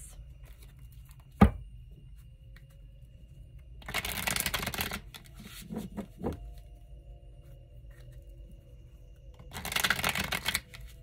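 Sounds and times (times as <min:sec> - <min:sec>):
cards riffling: 0:09.5 - 0:11.0.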